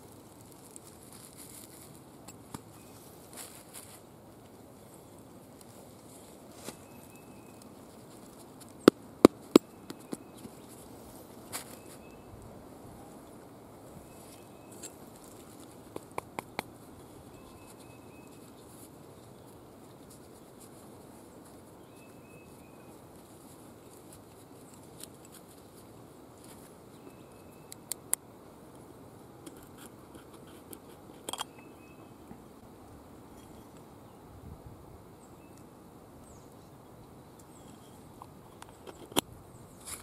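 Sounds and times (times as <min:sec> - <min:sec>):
handling cloth bags: 0:00.0 - 0:08.8, 0:09.4 - 0:12.2
background hiss: 0:00.0 - 0:40.0
metal tin clicks and taps: 0:30.7 - 0:31.6.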